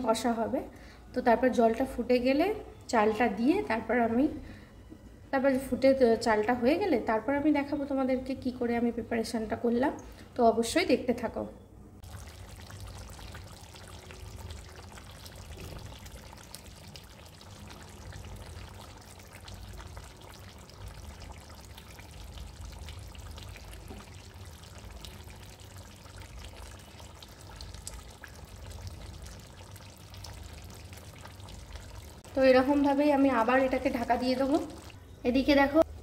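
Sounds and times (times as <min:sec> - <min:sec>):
curry bubbling with small pops: 0:12.0 - 0:35.0.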